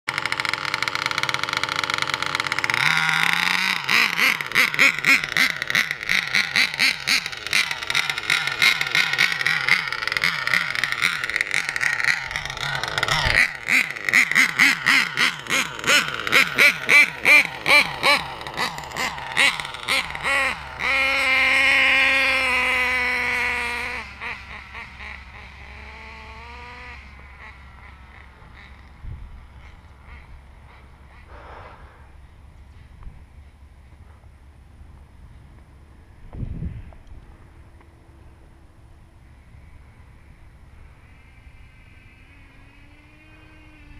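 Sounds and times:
model car engine revving: 0:00.1 - 0:32.1, 0:40.8 - 0:43.9.

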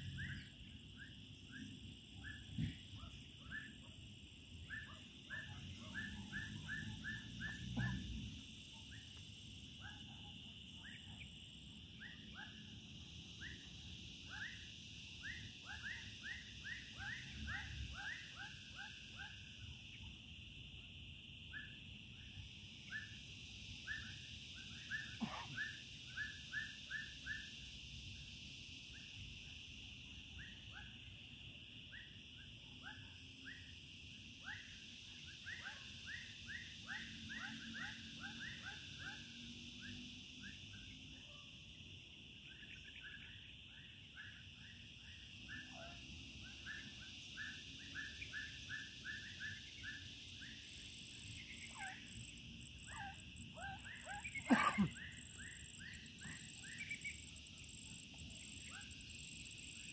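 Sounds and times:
high insect drone: 0:00.0 - 0:59.9.

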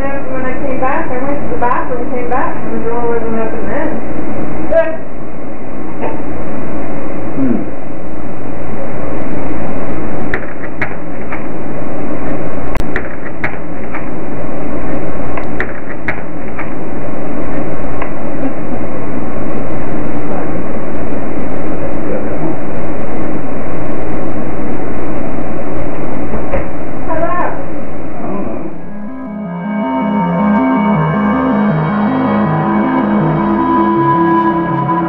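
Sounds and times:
low hum: 0:13.7 - 0:35.0.

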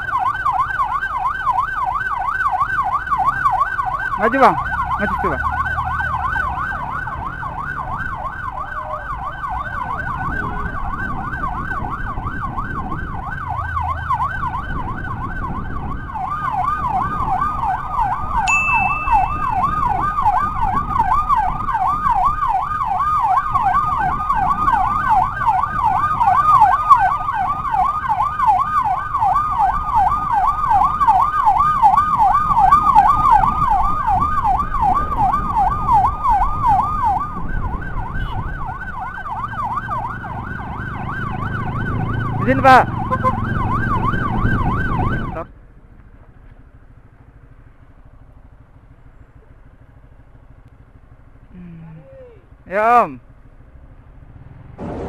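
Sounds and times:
emergency sirens yelping: 0:00.0 - 0:45.6, 0:47.0 - 0:53.2
low traffic rumble: 0:00.0 - 0:55.0
short high beep: 0:18.5 - 0:19.6.

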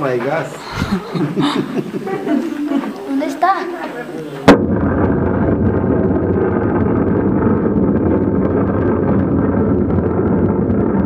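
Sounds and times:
explosion rumble with crackling: 0:04.5 - 0:11.0.

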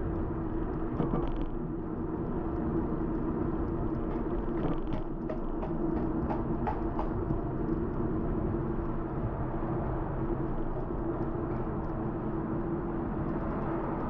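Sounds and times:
bicycle road rumble: 0:00.0 - 0:14.0
faint light ticks: 0:00.1 - 0:05.2, 0:10.4 - 0:14.0.

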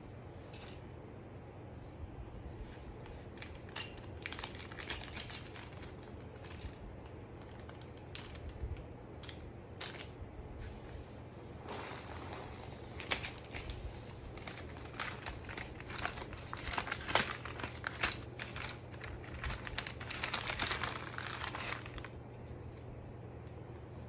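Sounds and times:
plastic bag crinkling: 0:03.2 - 0:08.6, 0:11.6 - 0:22.2.

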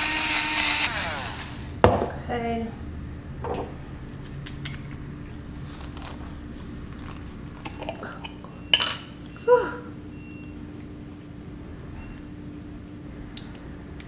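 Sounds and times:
metal lid clinking on stone: 0:08.7 - 0:09.2.

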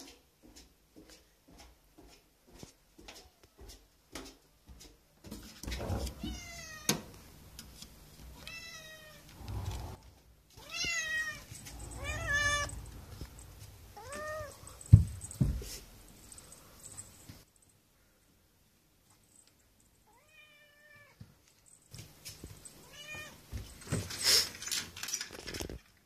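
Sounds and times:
kitten meowing: 0:10.6 - 0:12.8.

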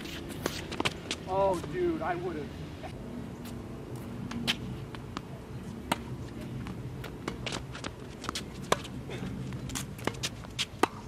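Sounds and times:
light footsteps on court: 0:00.0 - 0:01.9, 0:02.9 - 0:11.0
low steady hum: 0:00.0 - 0:11.0
tennis ball bouncing: 0:03.4 - 0:11.0
racket striking tennis ball: 0:05.8 - 0:09.0, 0:09.7 - 0:11.0.

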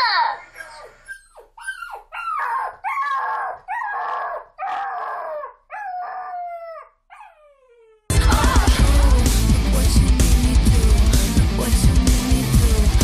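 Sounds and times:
dog howling and whining: 0:00.0 - 0:08.1.

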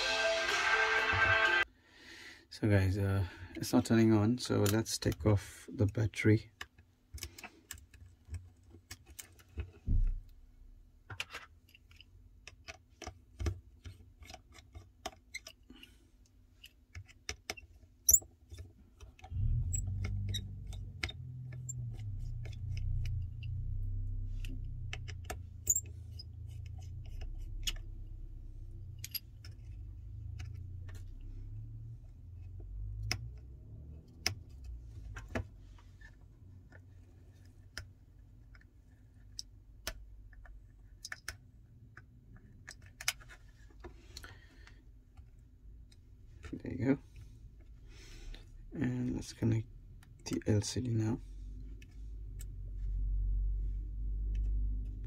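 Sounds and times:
small clicks and taps of a phone repair: 0:11.1 - 0:19.3, 0:36.6 - 0:44.3
low steady hum: 0:17.8 - 0:55.0.

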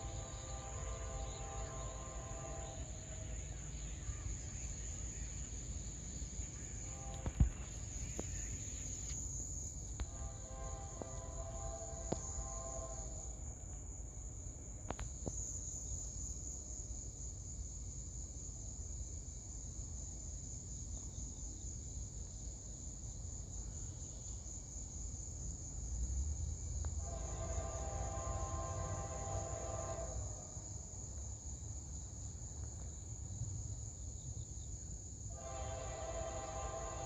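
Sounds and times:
distant locomotive horn: 0:00.0 - 0:03.3, 0:06.8 - 0:07.6, 0:10.0 - 0:13.4, 0:27.0 - 0:30.6, 0:35.3 - 0:37.0
high-pitched insect chorus: 0:00.0 - 0:37.0.

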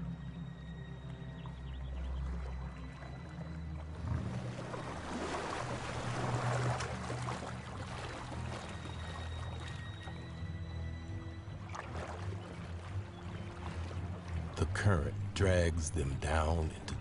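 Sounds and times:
low background music drone: 0:00.0 - 0:17.0
water splashing from swimming animal: 0:03.0 - 0:10.0, 0:11.6 - 0:14.6.

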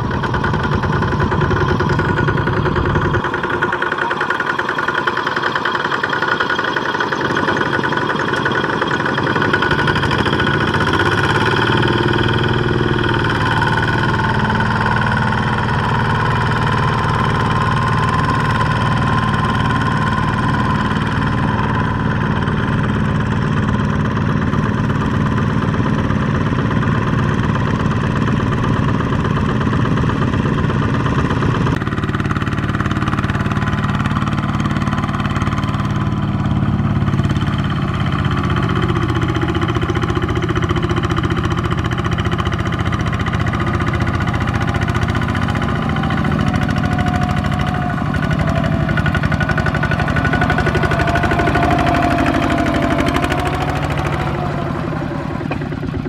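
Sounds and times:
walking tractor diesel engine: 0:00.0 - 0:56.0.

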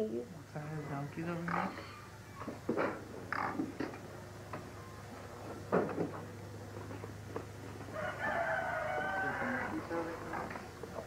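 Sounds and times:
low steady hum: 0:00.0 - 0:11.0
rooster crowing: 0:07.9 - 0:10.1.

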